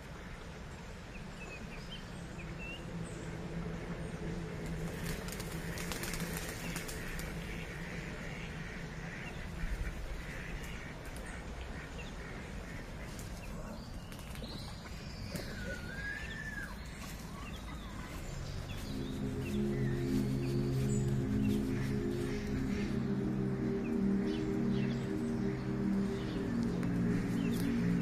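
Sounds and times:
steady outdoor hiss: 0.0s - 28.0s
duck wings flapping: 4.7s - 7.7s
ducks calling: 4.9s - 14.0s, 14.6s - 28.0s
whistled bird call: 15.2s - 18.0s.

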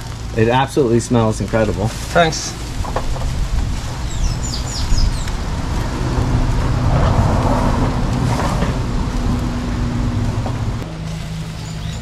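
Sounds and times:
low motor hum: 0.0s - 12.0s
rush of noise: 1.4s - 12.0s.

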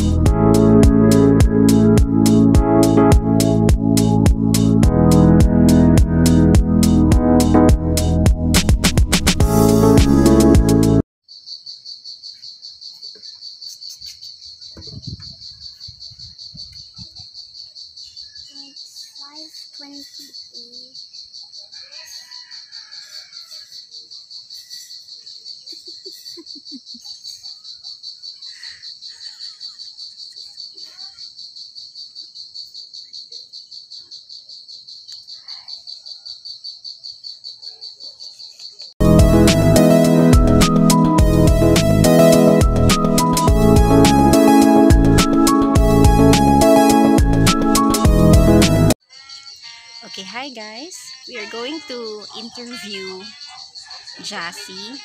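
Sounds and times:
electronic intro music: 0.0s - 11.0s, 39.0s - 49.0s
crickets chirping: 11.2s - 39.0s, 48.9s - 55.0s.

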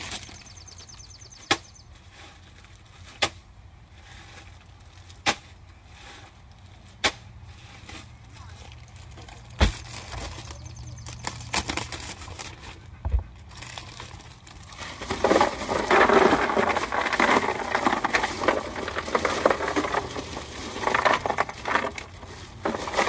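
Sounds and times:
plastic bag crinkling: 8.5s - 12.8s, 13.4s - 23.0s
ice cubes clattering into cooler: 13.5s - 23.0s.

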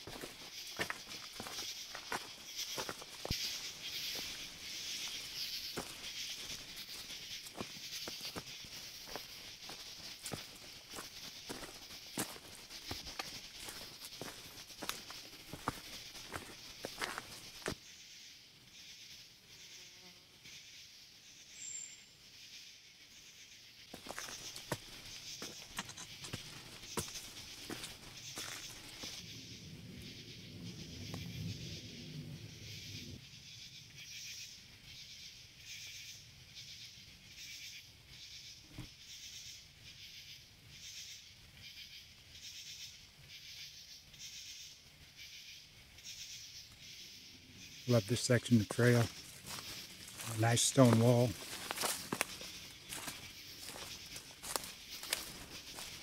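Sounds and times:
footsteps on dirt trail: 0.0s - 17.8s, 23.9s - 29.2s, 47.9s - 56.0s
high insect chirp: 0.0s - 56.0s
insects chorus: 0.0s - 56.0s.

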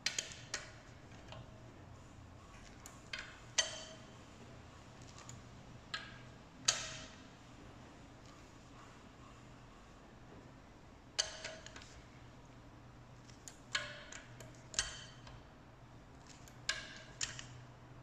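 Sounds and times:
faint steady hum: 0.0s - 18.0s
wrench clicking on bolts: 2.8s - 4.0s, 11.2s - 11.9s, 13.2s - 15.4s.

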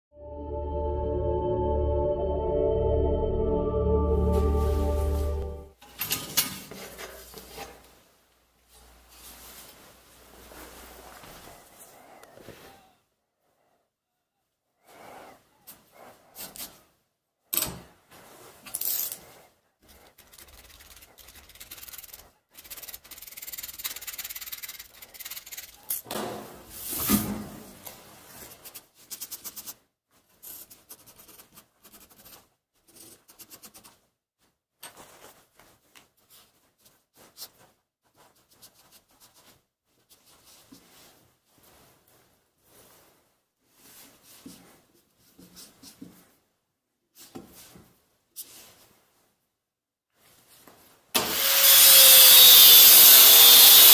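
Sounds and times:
gloved hand rubbing steel blade: 18.7s - 26.0s.

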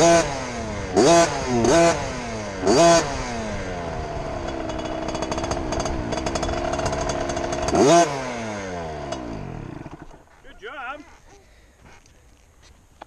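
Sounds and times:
two-stroke engine revving: 0.0s - 10.4s.

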